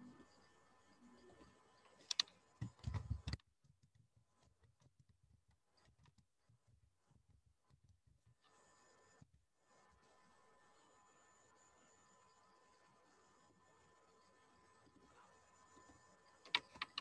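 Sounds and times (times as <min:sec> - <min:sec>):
sharp clicks: 0:02.0 - 0:03.4, 0:16.4 - 0:17.0.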